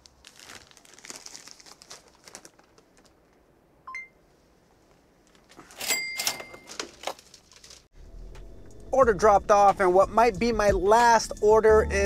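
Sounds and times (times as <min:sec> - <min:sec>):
rustling: 0:00.0 - 0:03.6, 0:04.7 - 0:06.0, 0:06.6 - 0:07.9.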